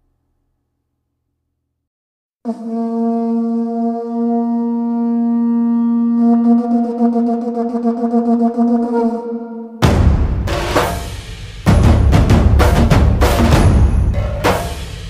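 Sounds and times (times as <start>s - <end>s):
wind instrument long note: 2.5s - 9.8s.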